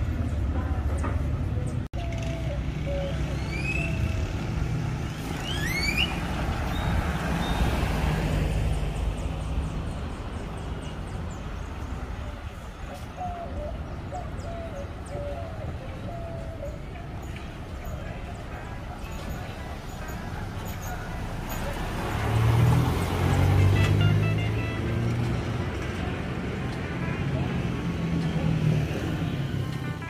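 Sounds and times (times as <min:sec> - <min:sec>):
low rumble of passing traffic: 0:00.0 - 0:30.0
rising whistles: 0:05.2 - 0:07.7.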